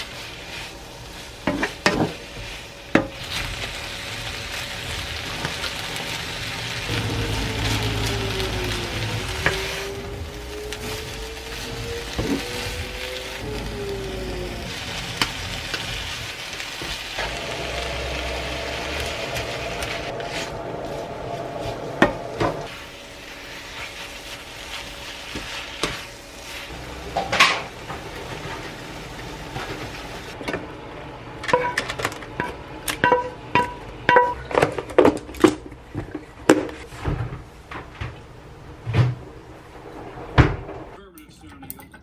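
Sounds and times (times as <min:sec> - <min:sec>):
food sizzling in a frying pan: 0:00.0 - 0:30.4.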